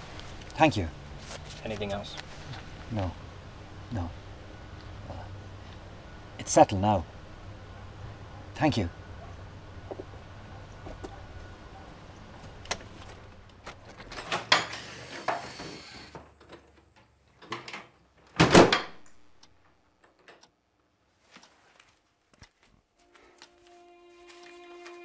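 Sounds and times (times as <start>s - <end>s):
outdoor background noise: 0.0s - 25.0s
wooden door pushed shut: 18.4s - 19.0s.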